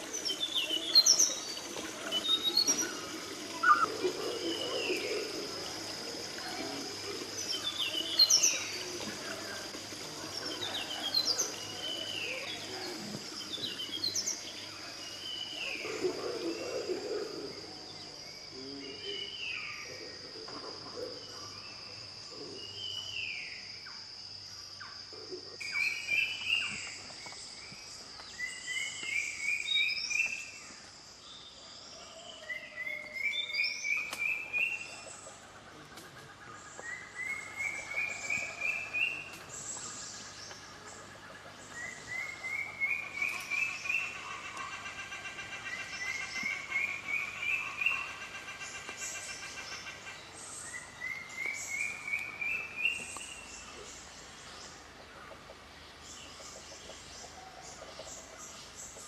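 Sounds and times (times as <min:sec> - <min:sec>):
birds calling: 0:00.0 - 0:23.7, 0:32.0 - 0:59.0
falling bird call: 0:03.5 - 0:04.0.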